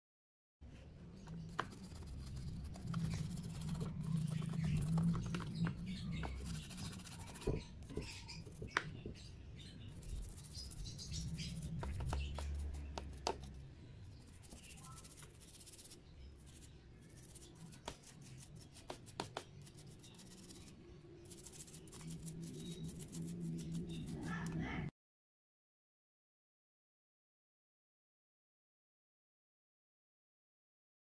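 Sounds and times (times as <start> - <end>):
faint low hum: 0.6 - 24.9
toothbrush scrubbing plastic parts: 9.9 - 13.6.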